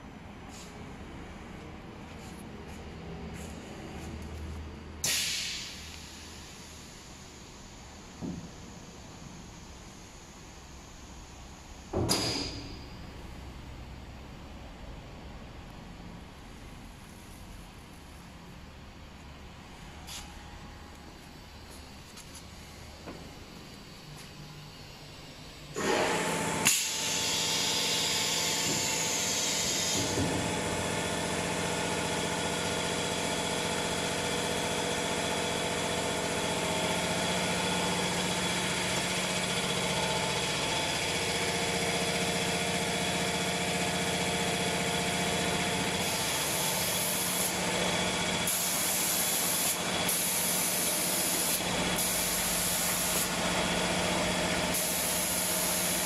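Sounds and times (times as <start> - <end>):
spray hissing: 48.5 - 53.3.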